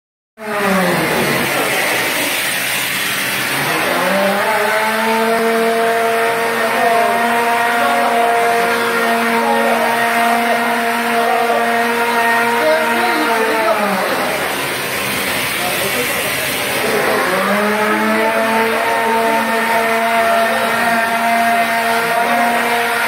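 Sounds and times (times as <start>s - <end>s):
machine motor whining: 0.4s - 23.0s.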